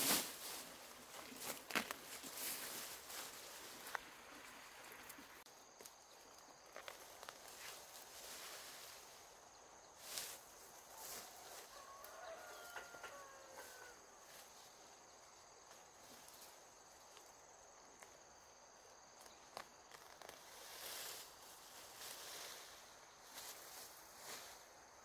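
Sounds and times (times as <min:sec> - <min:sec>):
soft rustles: 0:00.0 - 0:05.4
faint high insect drone: 0:00.1 - 0:25.0.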